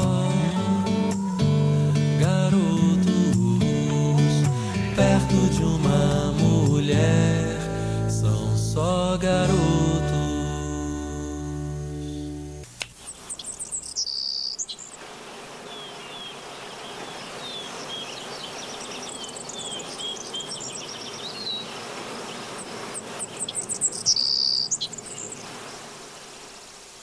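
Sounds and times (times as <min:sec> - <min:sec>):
birds chirping: 0:11.9 - 0:27.0
insects buzzing: 0:12.0 - 0:27.0
steady hiss: 0:14.7 - 0:24.2, 0:24.8 - 0:27.0.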